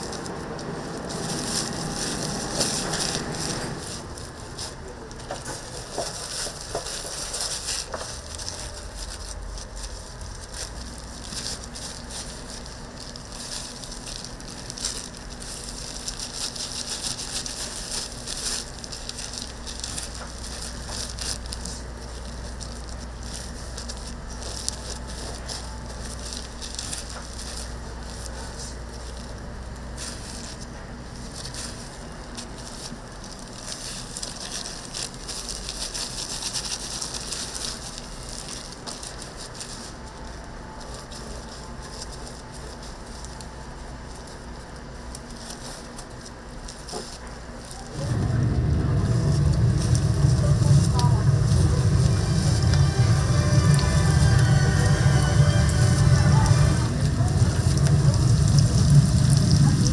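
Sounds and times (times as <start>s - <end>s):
oil sizzling while deep-frying: 56.5s - 59.9s.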